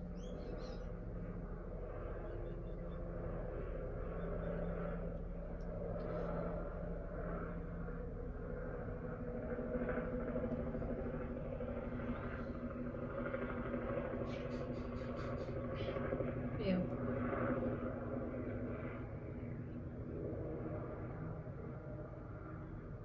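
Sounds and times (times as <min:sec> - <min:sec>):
faint hum: 0:00.0 - 0:23.0
low background rumble: 0:00.0 - 0:23.0.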